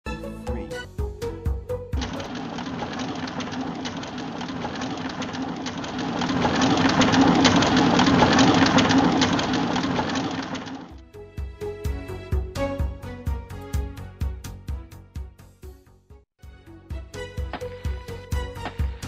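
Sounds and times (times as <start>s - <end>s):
mine car rattling along rails: 2.0s - 11.0s.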